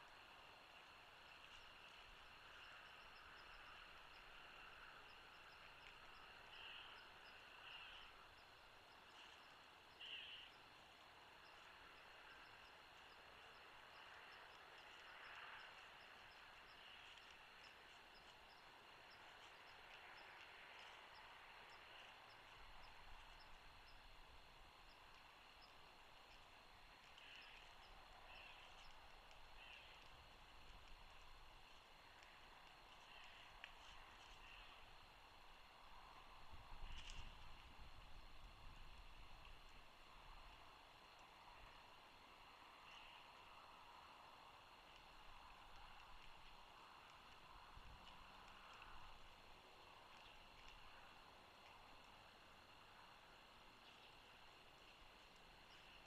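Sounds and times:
steady hiss: 0.0 - 56.0
distant eagle calls: 0.8 - 24.1, 27.0 - 30.2.

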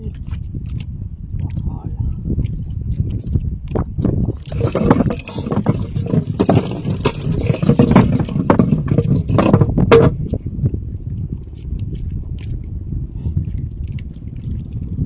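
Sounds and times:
steady low rumble: 0.0 - 15.0
water slapping against boat hull: 2.4 - 12.7
knocks on wooden boat: 4.6 - 10.3.

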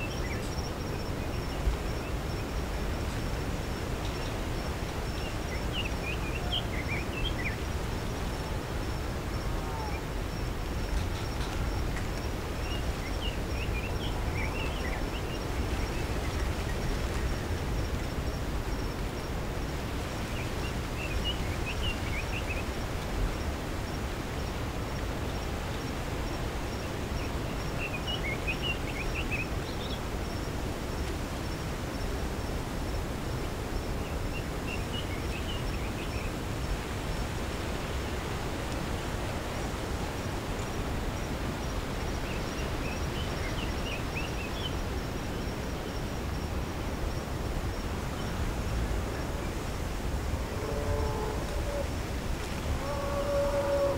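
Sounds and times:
songbird chirping: 0.0 - 19.0, 19.6 - 23.5, 24.4 - 30.5, 41.5 - 46.4
low rushing background noise: 0.0 - 53.9.

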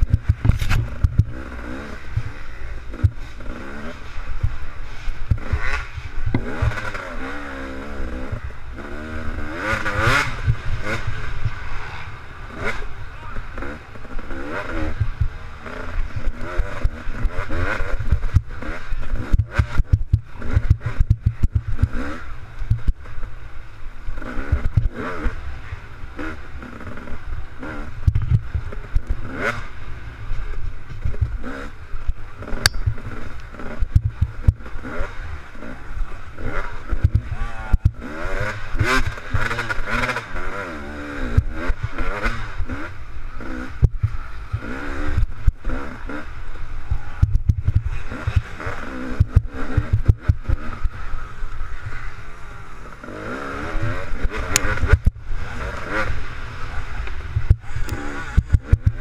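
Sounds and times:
bike knocks and rattles: 0.0 - 1.5, 18.0 - 23.0, 28.0 - 28.9, 30.7 - 31.6, 33.8 - 34.6, 43.7 - 44.7, 47.2 - 48.5, 57.2 - 59.0
dirt bike engine revving: 0.0 - 59.0.

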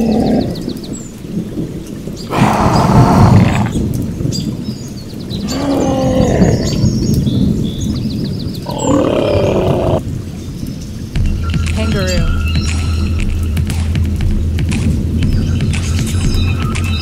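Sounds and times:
hippopotamus bellowing: 2.3 - 3.8, 8.7 - 10.0.

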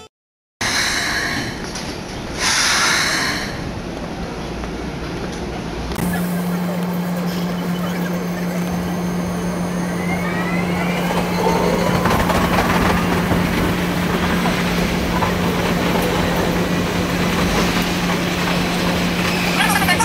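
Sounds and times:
electric train motor whine: 6.0 - 20.0.

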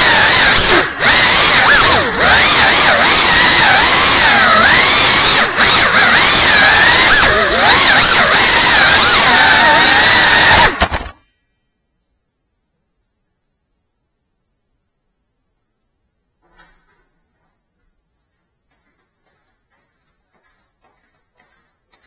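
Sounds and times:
drone motors whining: 0.0 - 11.2.

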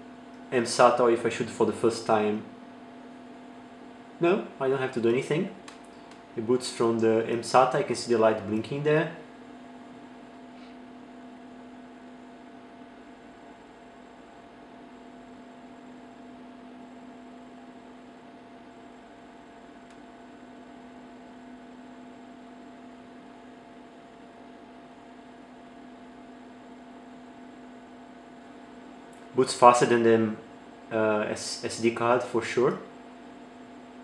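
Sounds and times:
faint electrical hum: 0.0 - 34.0.

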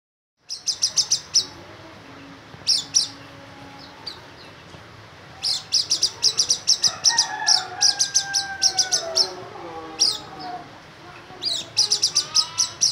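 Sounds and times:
bird singing high chirps: 0.4 - 1.6, 2.6 - 4.7, 5.4 - 9.4, 10.0 - 10.6, 11.4 - 12.9.

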